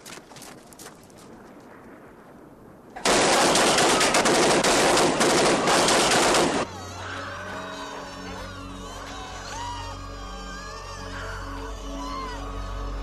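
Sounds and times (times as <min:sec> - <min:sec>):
submachine guns automatic fire: 0:03.0 - 0:06.7
low music tones: 0:06.6 - 0:13.0.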